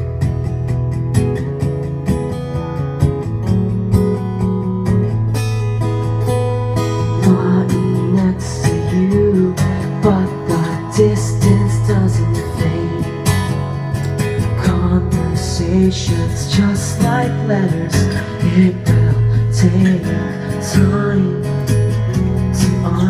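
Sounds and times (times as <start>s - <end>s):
acoustic guitar strumming: 0.0s - 23.0s
man singing: 7.0s - 13.7s, 14.4s - 23.0s.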